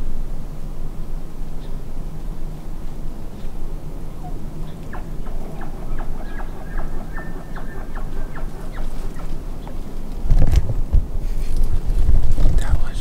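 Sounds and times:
low steady rumble: 0:00.0 - 0:13.0
wind blast on microphone: 0:10.2 - 0:13.0.

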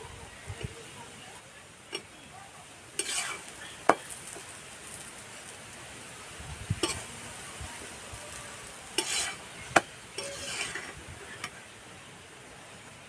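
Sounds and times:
oil sizzling: 0:00.0 - 0:13.0
metal spatula tapping and scraping: 0:01.9 - 0:02.2, 0:03.0 - 0:05.0, 0:06.7 - 0:07.1, 0:08.9 - 0:11.6.

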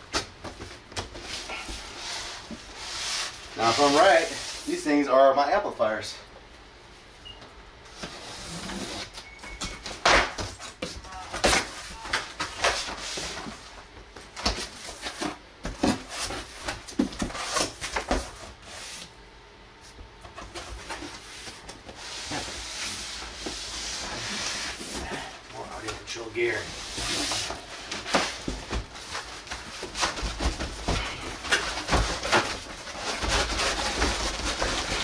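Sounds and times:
cardboard scraping and rustling: 0:20.4 - 0:35.0.

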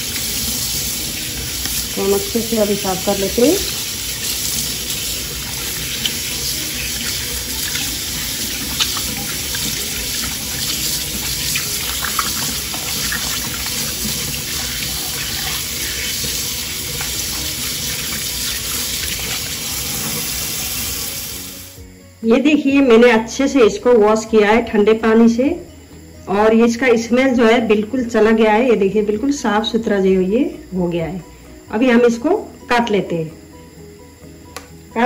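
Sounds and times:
tap running into a colander: 0:00.0 - 0:02.1, 0:03.4 - 0:21.3
hands rubbing and rinsing tripe: 0:00.0 - 0:21.3
small water splashes: 0:04.6 - 0:16.4.

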